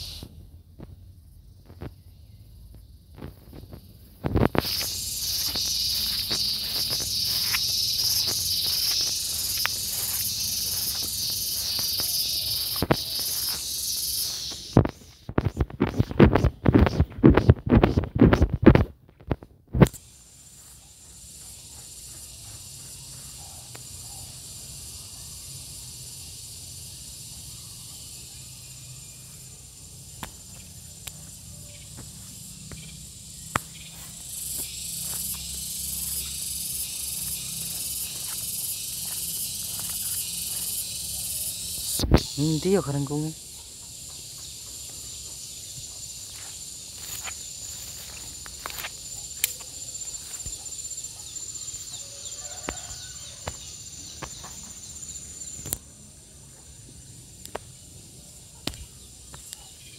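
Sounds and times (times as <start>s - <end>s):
cicada buzzing: 0.0s - 18.9s, 19.7s - 59.9s
footsteps in grass: 3.2s - 19.4s, 20.4s - 23.5s, 33.5s - 43.2s, 44.7s - 50.8s.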